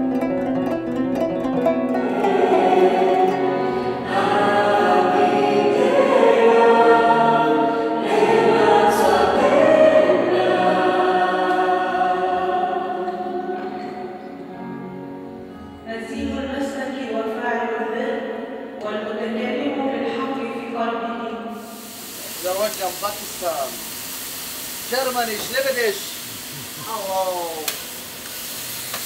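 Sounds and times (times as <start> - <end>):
choir singing held chords: 1.7 - 15.4.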